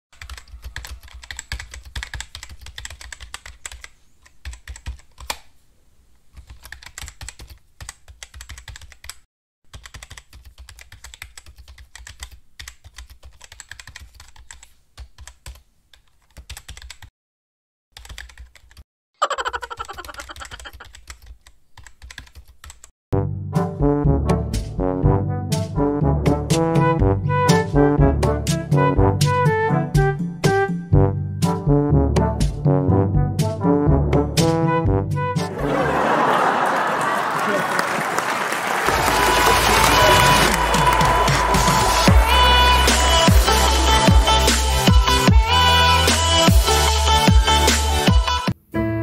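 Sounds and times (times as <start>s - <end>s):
computer keyboard typing clicks: 0.2s - 5.4s, 6.4s - 17.1s, 18.0s - 18.8s, 19.8s - 22.9s
loud brass music: 23.2s - 30.0s, 38.9s - 46.3s.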